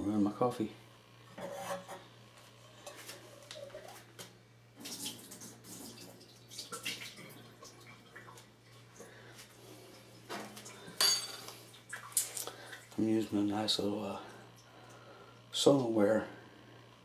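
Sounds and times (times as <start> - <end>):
steady low hum: 0.0 - 4.8, 7.1 - 17.0
water trickling and splashing: 4.8 - 9.1, 11.6 - 13.0.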